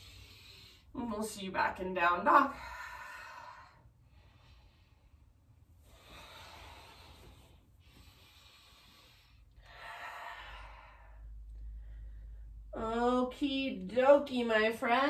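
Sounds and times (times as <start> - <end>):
woman breathing slowly: 0.0 - 1.0, 2.5 - 12.7.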